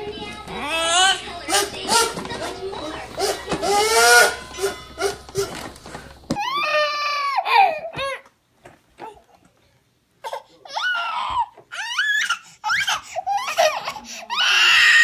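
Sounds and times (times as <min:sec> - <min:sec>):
toddlers squealing: 0:00.6 - 0:07.9.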